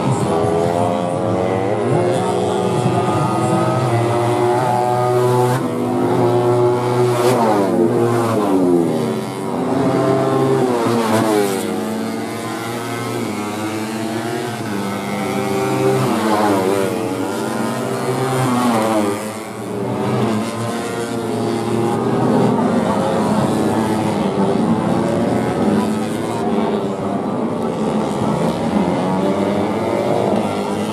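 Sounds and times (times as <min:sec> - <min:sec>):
motorcycles racing at full throttle: 0:00.0 - 0:30.9.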